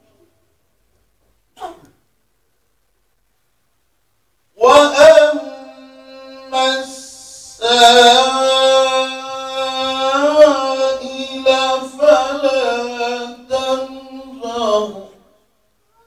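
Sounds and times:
man chanting melodically: 4.6s - 15.3s.

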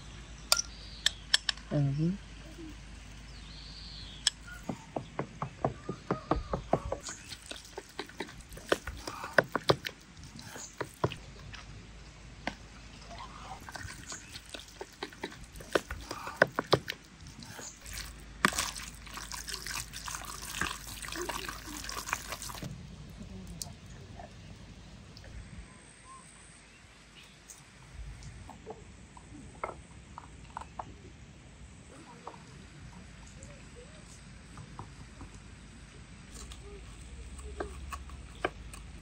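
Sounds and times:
wet squishing of meat: 7.0s - 11.8s, 12.6s - 22.7s.

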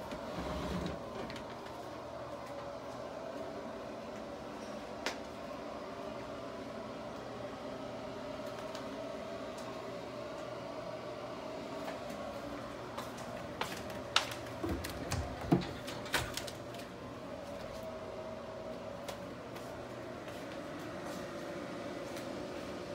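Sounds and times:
ventilation fan hum: 0.0s - 22.9s.

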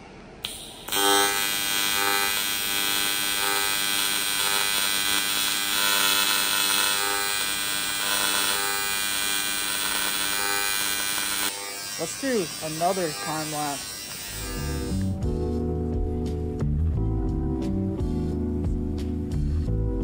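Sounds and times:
welding arc buzzing: 0.4s - 15.2s.

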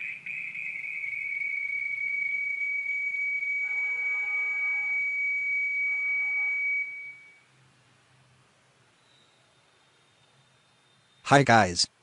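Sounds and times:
high-pitched whistle-like tone: 0.0s - 7.5s.

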